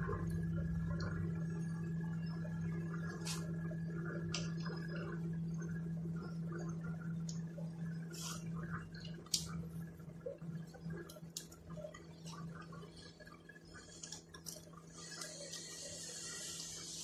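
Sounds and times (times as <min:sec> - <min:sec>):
steady low hum: 0:00.0 - 0:17.0
hiss: 0:14.9 - 0:17.0.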